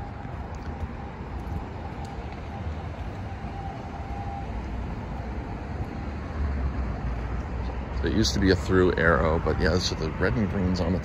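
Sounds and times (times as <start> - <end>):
street traffic: 0.0 - 11.0.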